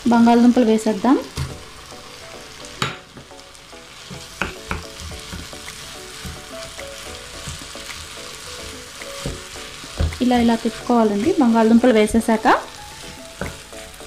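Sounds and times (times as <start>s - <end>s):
vegetables sizzling in a pan: 0.0s - 14.0s
spatula knocking on pan: 4.1s - 6.6s, 9.2s - 10.4s.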